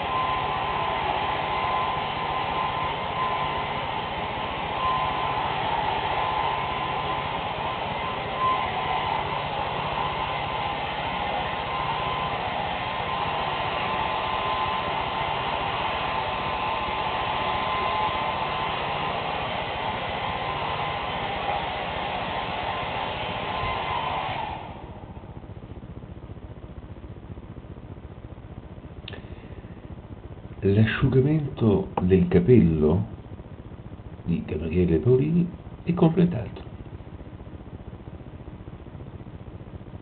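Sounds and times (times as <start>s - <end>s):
hair dryer running: 0.0s - 25.4s.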